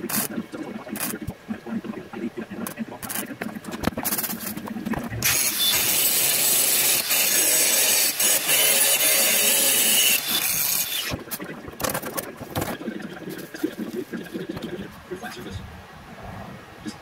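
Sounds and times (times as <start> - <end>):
angle grinder grinding steel: 5.2 - 11.2.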